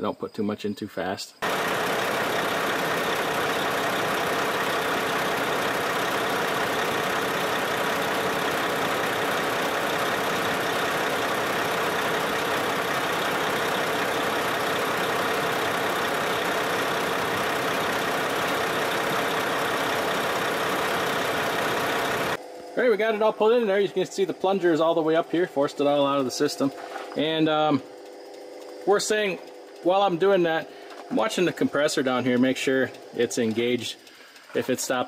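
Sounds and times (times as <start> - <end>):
truck diesel engine idling: 1.4 - 22.4
air conditioning compressor: 1.4 - 35.0.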